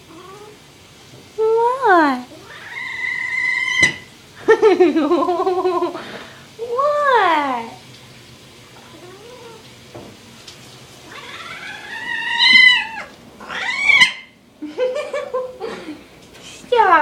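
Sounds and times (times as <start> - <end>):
kitten meowing: 11.1 - 14.3.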